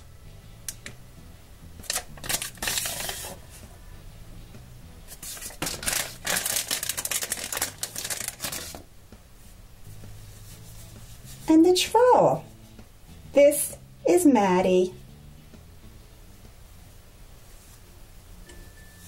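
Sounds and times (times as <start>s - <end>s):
paper packaging crinkling: 1.8s - 3.4s, 5.1s - 8.8s.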